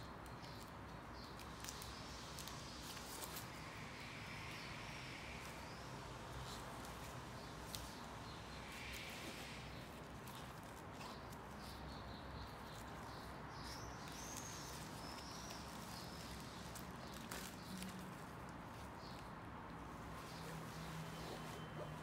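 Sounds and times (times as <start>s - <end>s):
fabric rustling: 19.8s - 22.0s.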